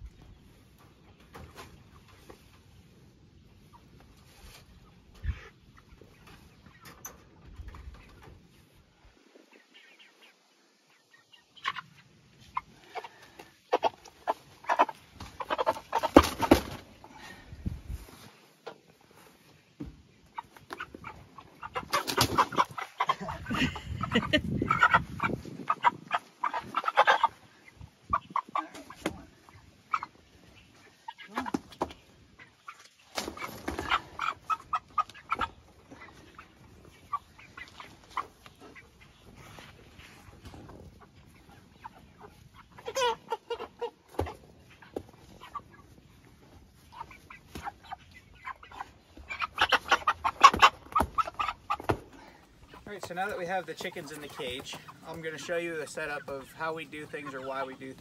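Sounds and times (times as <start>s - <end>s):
chicken squawking: 20.3s - 31.8s, 32.4s - 40.3s, 40.9s - 46.0s, 46.7s - 53.0s
wings flapping: 21.8s - 22.9s, 32.8s - 34.2s.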